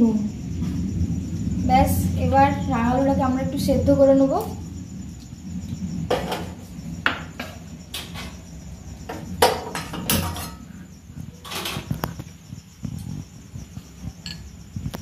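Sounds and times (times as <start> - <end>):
pot and utensils clanking: 9.1 - 10.7, 11.4 - 12.0.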